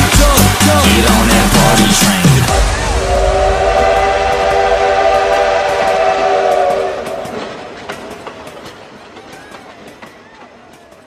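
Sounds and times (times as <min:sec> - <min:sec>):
faint falling train tones: 0:02.5 - 0:11.0
train horn chord: 0:02.8 - 0:07.8
train clicks: 0:05.6 - 0:11.0.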